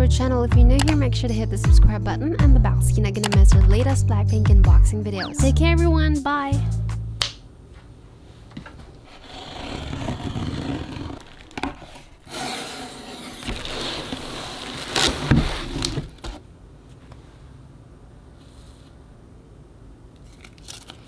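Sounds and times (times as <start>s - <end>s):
cardboard flaps pulled open: 9.2s - 16.4s
bubble wrap rustling: 13.3s - 16.2s.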